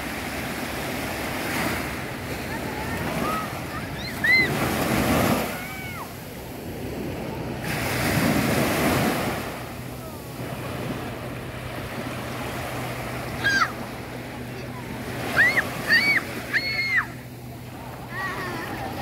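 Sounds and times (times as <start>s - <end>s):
waves washing up beach: 0.0s - 19.0s
distant children shouting: 2.5s - 6.2s, 13.2s - 19.0s.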